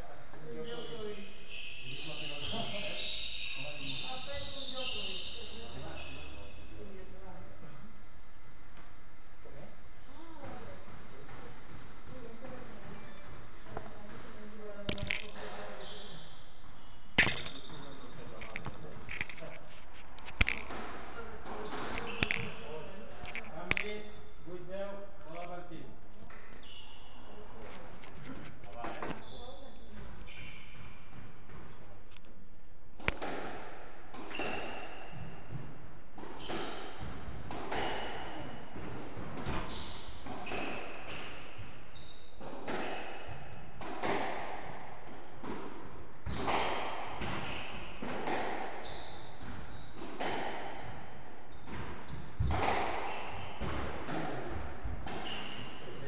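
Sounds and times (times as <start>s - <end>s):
racket hitting squash ball: 13.3s - 24.8s, 33.0s - 56.0s
ball smacking off walls and floor: 14.7s - 15.8s, 17.2s - 24.6s, 51.7s - 55.6s.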